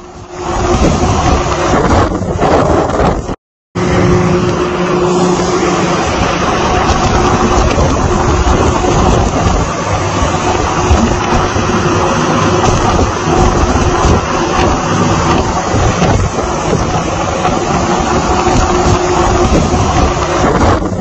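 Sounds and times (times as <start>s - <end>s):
boat engine drone: 0.0s - 21.0s
rough seas churning: 0.0s - 21.0s
wind buffeting microphone: 0.0s - 21.0s.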